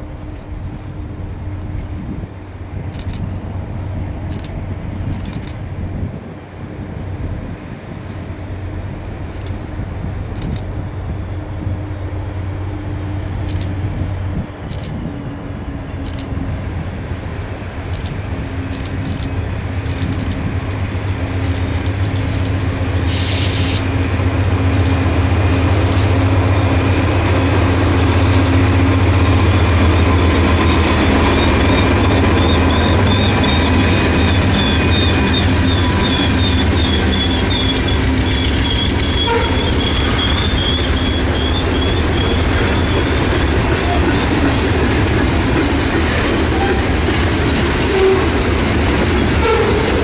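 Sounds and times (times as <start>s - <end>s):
locomotive engines droning: 0.0s - 50.0s
brief hiss: 22.1s - 23.9s
wavering high squeal: 30.6s - 43.5s.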